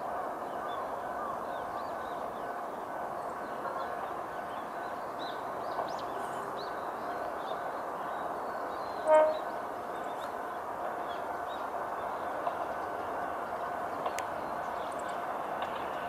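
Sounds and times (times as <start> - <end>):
train horn blast: 9.0 - 9.6.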